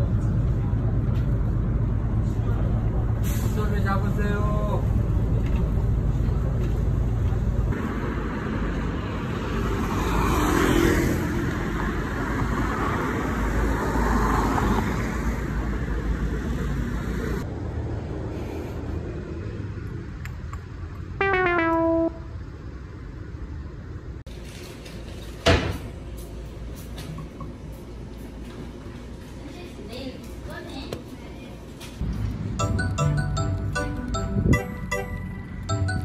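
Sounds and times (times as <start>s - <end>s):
cars passing: 0.0s - 24.2s, 32.0s - 36.0s
bus rumbling: 0.0s - 29.8s, 31.6s - 36.0s
short horn toot: 21.2s - 22.3s.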